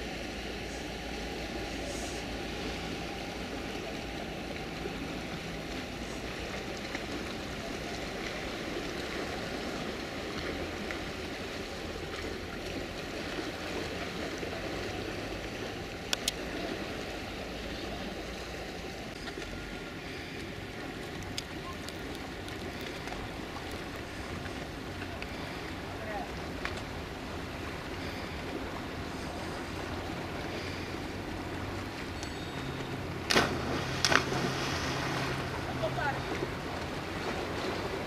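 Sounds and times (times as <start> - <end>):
sea water lapping against rocks: 19.0 - 32.2, 33.0 - 38.0.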